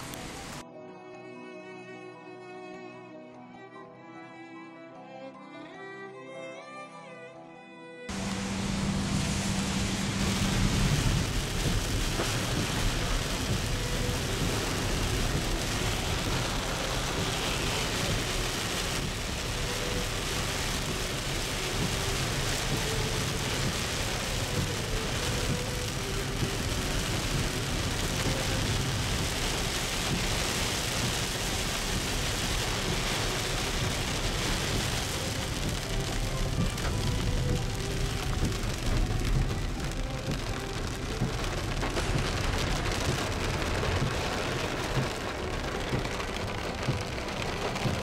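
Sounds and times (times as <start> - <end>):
heavy rain on a car: 0.0 - 0.6, 8.1 - 48.0
low thunder rumble: 8.1 - 39.6.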